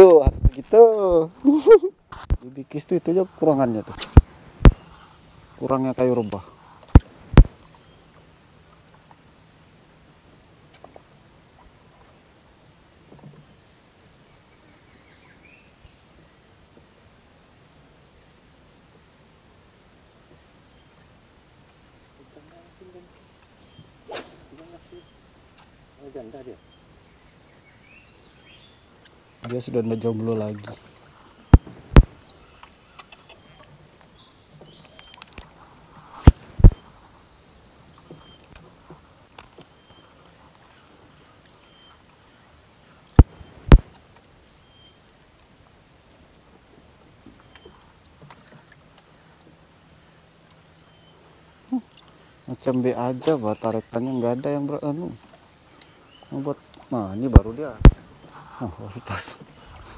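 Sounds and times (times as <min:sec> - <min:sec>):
faint high chirps: 0:04.1 - 0:05.2, 0:06.9 - 0:08.0, 0:31.4 - 0:33.8, 0:36.2 - 0:37.4, 0:43.2 - 0:44.0, 0:57.2 - 0:58.0
faint bird chirps: 0:04.1 - 0:06.3, 0:07.0 - 0:08.1, 0:23.6 - 0:30.8, 0:31.4 - 0:35.4, 0:36.2 - 0:38.5, 0:39.6 - 0:45.1, 0:47.3 - 0:47.8, 0:50.6 - 0:59.1.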